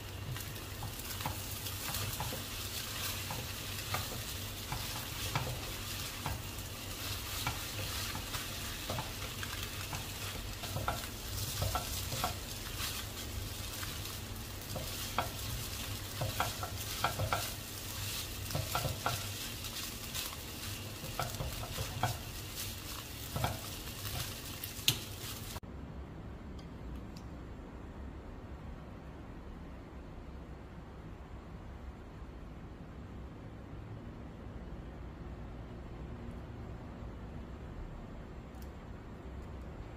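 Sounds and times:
noodles sizzling in a wok: 0.0 - 25.6
spatula scraping and tapping pan: 0.0 - 25.6.

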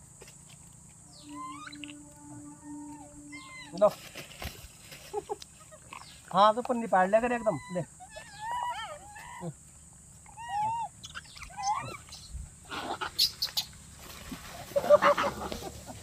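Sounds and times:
monkeys calling: 1.1 - 3.8, 7.0 - 9.6, 10.2 - 13.8, 14.5 - 16.0.

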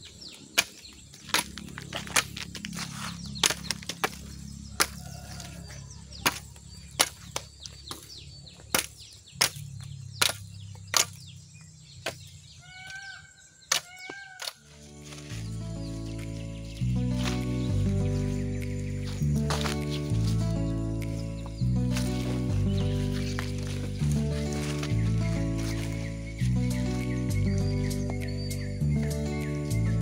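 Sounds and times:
billhook chopping a stalk: 0.5 - 11.4, 12.0 - 13.0, 13.6 - 15.4, 17.2 - 26.6
music: 14.8 - 30.0.

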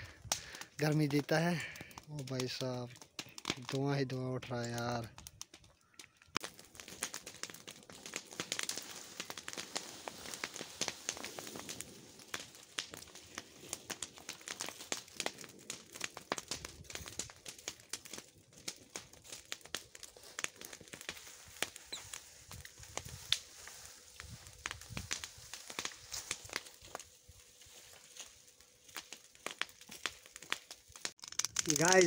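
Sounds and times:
leafy branches rustling and snapping: 4.6 - 32.0.

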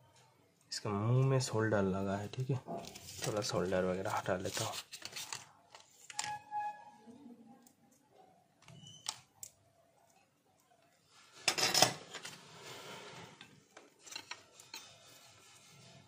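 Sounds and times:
small tools clicking and tapping: 13.8 - 15.0.

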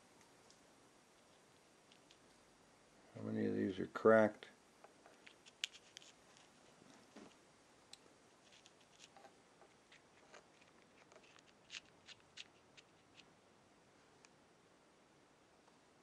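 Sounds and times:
probe tool ticking and scratching: 5.1 - 6.5, 8.4 - 13.3.

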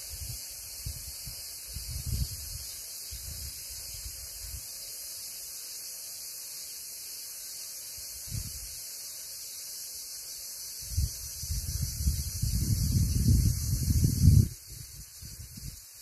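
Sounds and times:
steady high-pitched hiss: 0.0 - 16.0
wind buffeting microphone: 1.7 - 2.6, 10.8 - 15.8.

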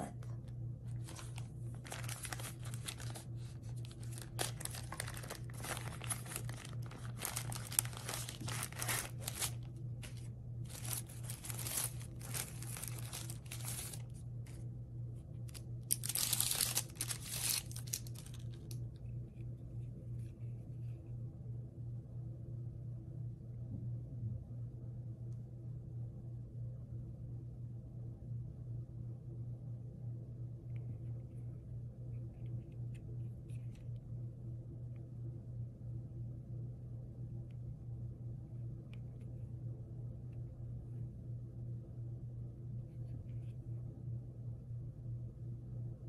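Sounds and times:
low steady hum: 0.0 - 46.0
plastic sleeve crinkling and rustling: 0.9 - 14.6, 15.4 - 18.8.

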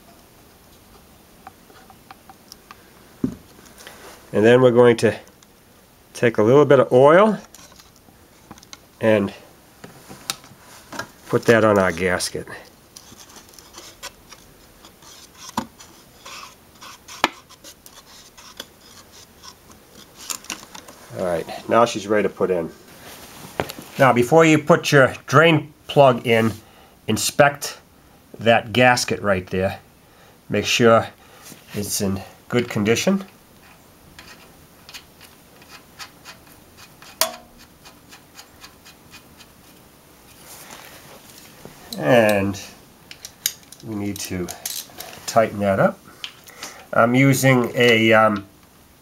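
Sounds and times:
fingertip rubbing oil on rubber: 13.0 - 20.3
metallic ticks and rubbing: 33.6 - 39.6.

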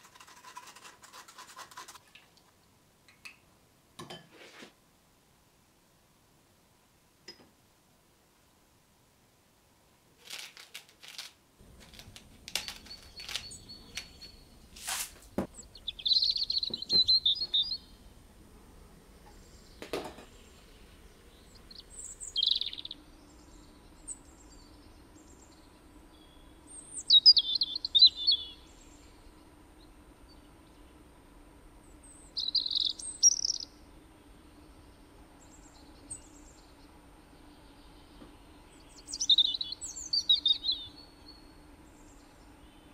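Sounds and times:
faint steady hum: 10.8 - 42.9
high bird chirping: 12.5 - 14.7, 15.4 - 18.0, 19.3 - 24.8, 26.1 - 28.9, 32.0 - 33.7, 38.1 - 41.5.

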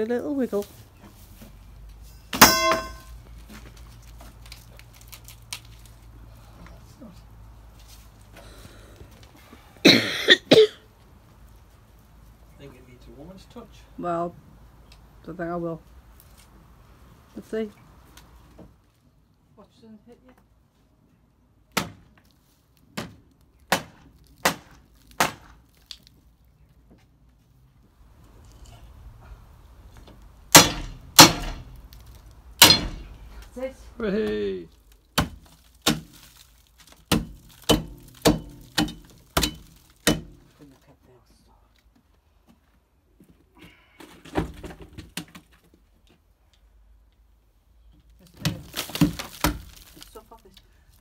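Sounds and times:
hammer striking wood: 2.3 - 3.1, 30.5 - 31.7, 32.6 - 33.0, 37.1 - 40.4
wood cracking and clattering: 48.2 - 50.5.

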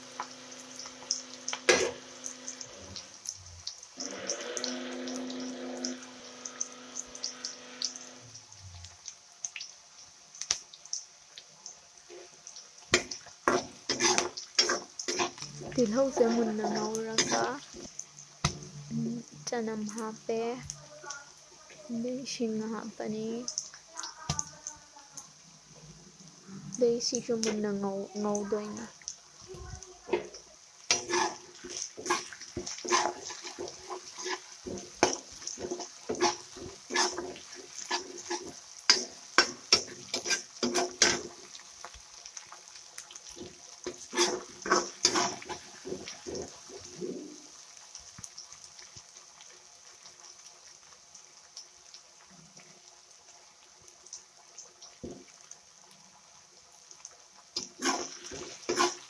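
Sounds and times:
vegetables sizzling in oil: 0.0 - 59.0
spatula scraping a pan: 1.6 - 2.1, 12.1 - 17.9, 30.1 - 41.6, 43.3 - 47.4, 57.6 - 59.0.

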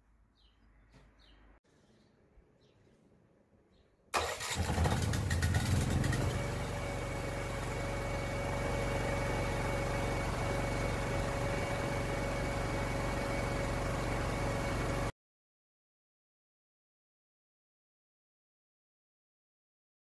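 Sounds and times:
engine starting and running: 4.1 - 15.1.

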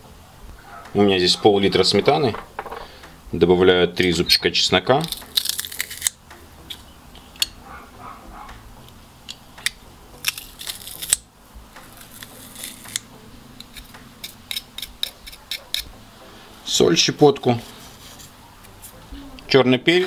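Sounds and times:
garlic press crushing garlic: 5.0 - 7.6, 8.9 - 16.0.

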